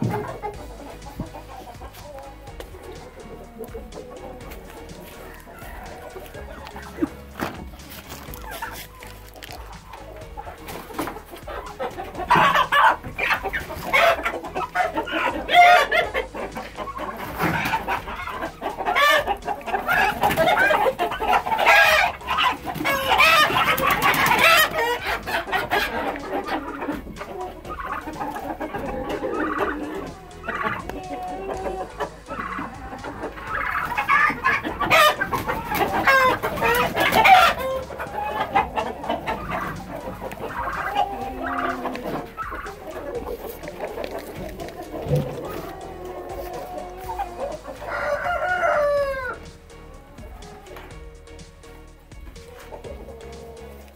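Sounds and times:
chickens squawking and clucking: 0.0 - 53.9
rooster crowing: 4.9 - 7.3, 45.0 - 49.4
wings flapping: 19.8 - 27.0.

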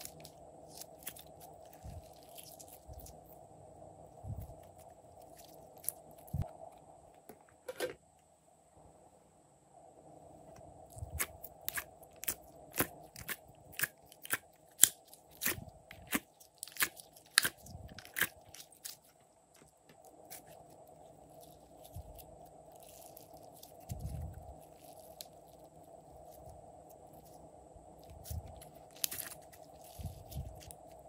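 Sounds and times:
slime clicking and crackling: 11.1 - 19.2
slime squishing: 28.0 - 30.9.

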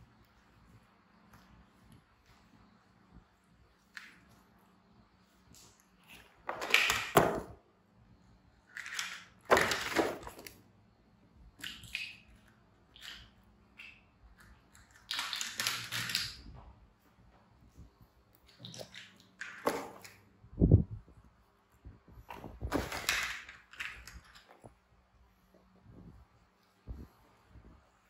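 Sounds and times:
rustling and clattering toys: 5.6 - 7.6, 8.6 - 10.6, 14.5 - 16.8, 22.1 - 25.0.

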